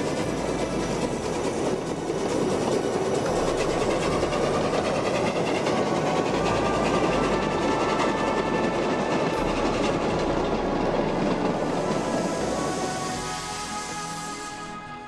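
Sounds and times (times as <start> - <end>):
wagons rolling on rails: 0.0 - 13.8
steam locomotive passing: 0.0 - 15.0.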